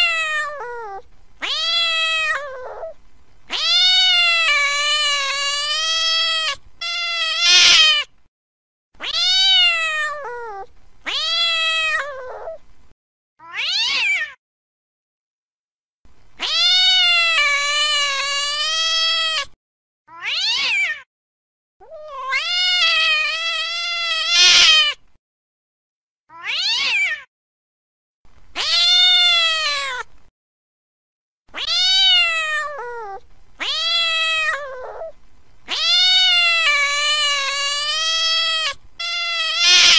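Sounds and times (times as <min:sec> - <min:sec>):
cats yowling in a fight: 0:00.0 - 0:08.1, 0:09.0 - 0:12.6, 0:13.4 - 0:14.4, 0:16.4 - 0:19.5, 0:20.1 - 0:21.1, 0:21.8 - 0:25.0, 0:26.3 - 0:27.3, 0:28.6 - 0:30.1, 0:31.5 - 0:39.9.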